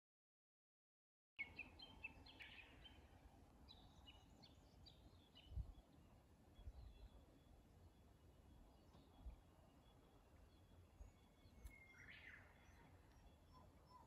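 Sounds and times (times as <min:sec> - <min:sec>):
small birds chirping: 0:06.6 - 0:14.0.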